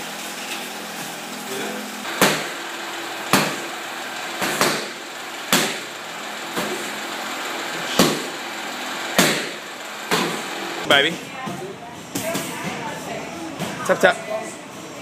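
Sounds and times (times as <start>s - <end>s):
punches smacking pads: 2.2s - 2.5s, 3.3s - 3.6s, 4.4s - 5.9s, 9.2s - 10.4s.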